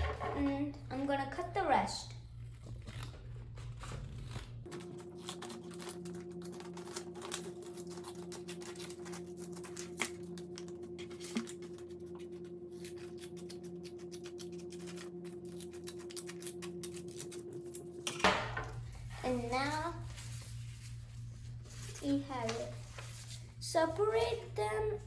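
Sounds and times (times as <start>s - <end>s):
steady low hum: 0.0s - 25.0s
paper rustling: 2.4s - 17.8s, 18.9s - 23.5s
scissors snipping paper: 2.5s - 17.9s.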